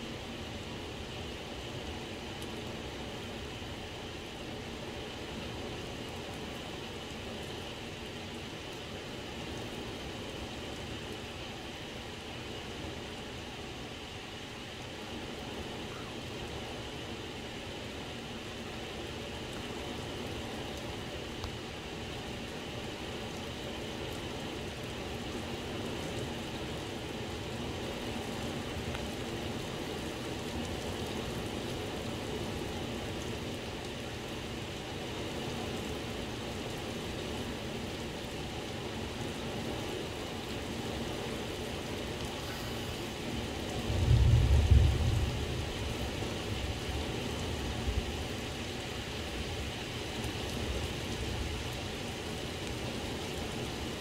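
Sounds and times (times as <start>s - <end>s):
steady rain: 0.0s - 54.0s
low rumble of thunder: 43.7s - 48.2s.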